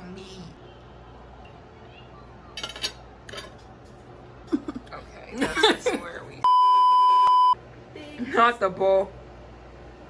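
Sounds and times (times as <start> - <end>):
person laughing: 4.5 - 6.1
electronic bleep tone: 6.5 - 7.6.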